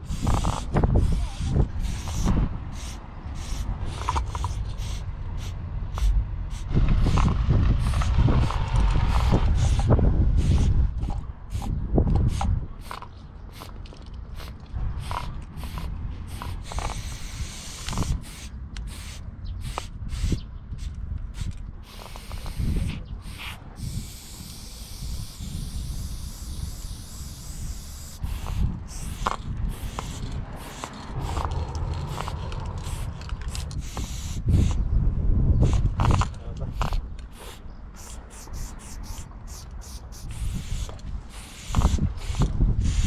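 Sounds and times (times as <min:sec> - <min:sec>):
low rumble: 0:00.0 - 0:12.8
spray paint can hissing: 0:00.0 - 0:13.8, 0:14.4 - 0:34.8, 0:35.6 - 0:43.0.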